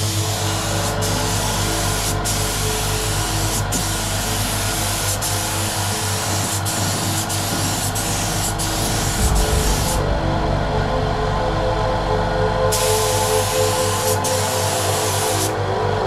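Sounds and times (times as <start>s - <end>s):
spray gun hissing: 3.7s - 10.0s.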